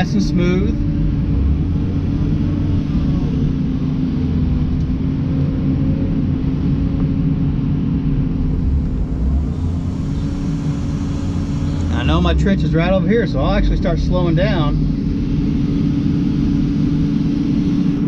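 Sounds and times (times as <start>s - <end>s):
excavator diesel engine humming: 0.0s - 18.0s.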